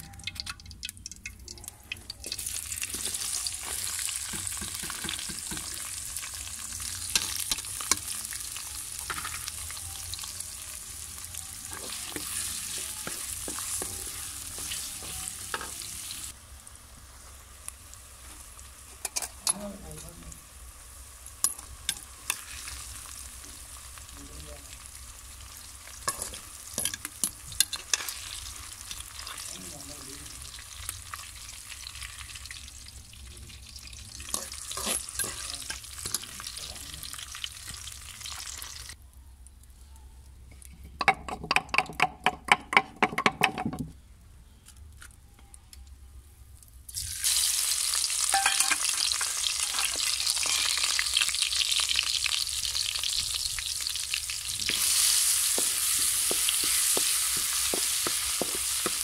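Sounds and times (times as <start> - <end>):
onions sizzling in oil: 1.9 - 39.0, 46.9 - 59.0
paste sizzling in hot oil: 2.2 - 39.0, 46.9 - 59.0
skimmer scraping wok: 34.2 - 36.7, 47.2 - 51.2, 54.5 - 59.0.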